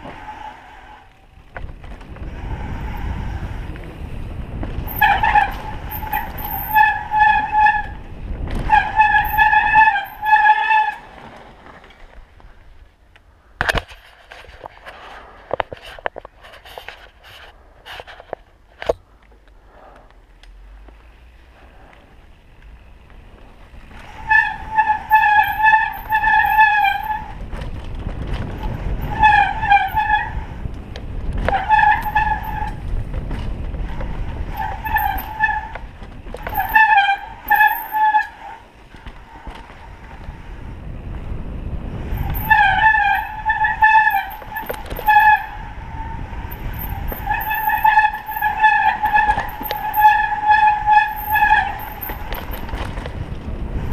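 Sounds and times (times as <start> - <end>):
low rumble of bike on dirt trail: 0.0 - 53.9
bike disc brakes squealing: 4.8 - 11.2, 23.7 - 27.5, 28.4 - 30.7, 31.3 - 40.0, 42.0 - 53.0.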